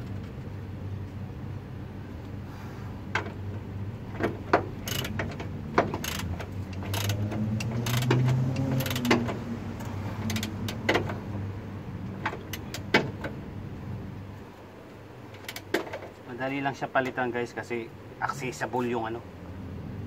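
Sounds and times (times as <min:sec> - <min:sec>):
socket ratchet clicks: 0:04.8 - 0:11.1.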